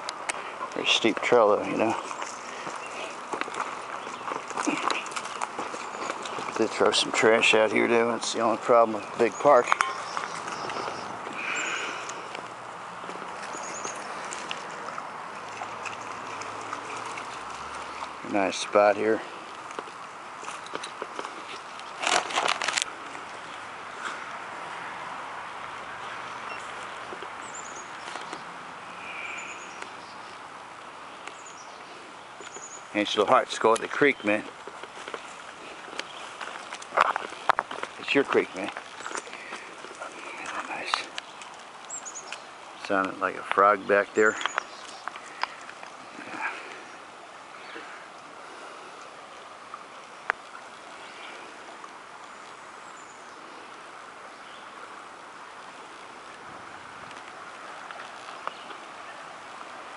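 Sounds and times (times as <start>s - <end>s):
creek running over rocks: 0.0s - 59.9s
high quick bird chirping: 9.4s - 12.1s.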